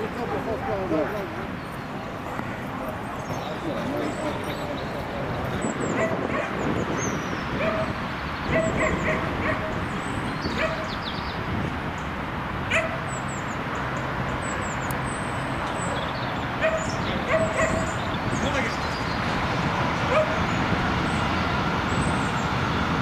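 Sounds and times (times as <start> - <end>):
dog barking: 6.0 - 6.6, 7.6 - 9.8, 10.5 - 10.9, 12.7 - 13.0, 16.6 - 18.0, 20.1 - 20.4.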